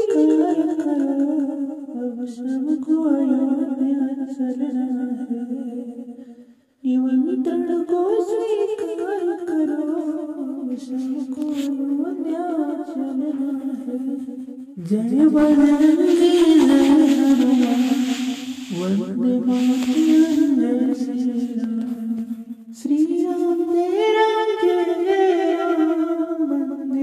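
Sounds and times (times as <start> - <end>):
person humming devotional melody: 6.9 - 14.2, 14.8 - 27.0.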